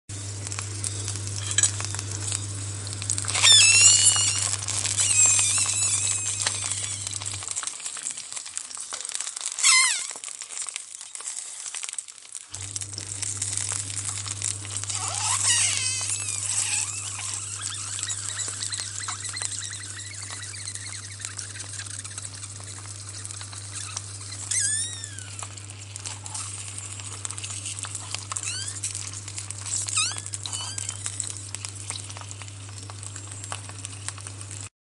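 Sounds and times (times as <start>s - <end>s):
sausages sizzling on a grill: 0.1s - 34.7s
high-pitched squeals: 3.2s - 7.6s, 9.6s - 10.2s, 14.9s - 26.5s, 27.4s - 28.9s, 29.6s - 31.3s.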